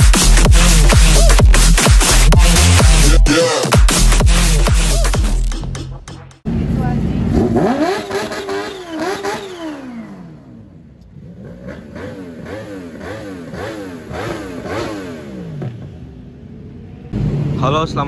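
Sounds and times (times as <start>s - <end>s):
motorcycle engines revving: 6.5s - 18.0s.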